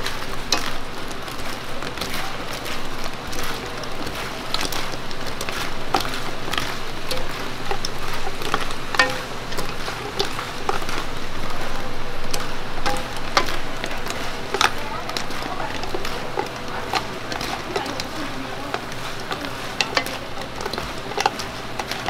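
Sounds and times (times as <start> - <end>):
chicken deep-frying in oil: 0.0 - 22.0.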